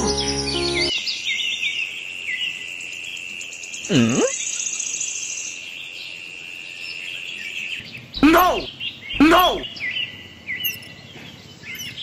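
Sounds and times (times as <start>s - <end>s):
bird chirps: 7.3s - 12.0s.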